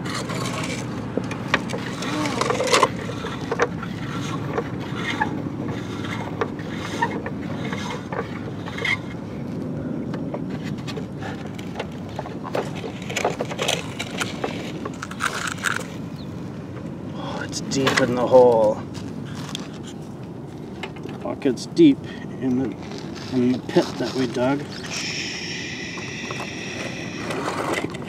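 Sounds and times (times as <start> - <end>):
steady low rumble: 13.8 - 28.0.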